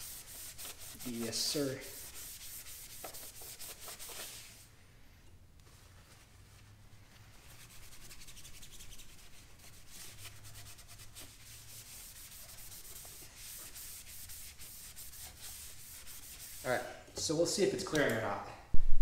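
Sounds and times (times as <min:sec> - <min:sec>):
rag rubbing on metal pipe: 0:00.0 - 0:04.6, 0:07.6 - 0:16.9.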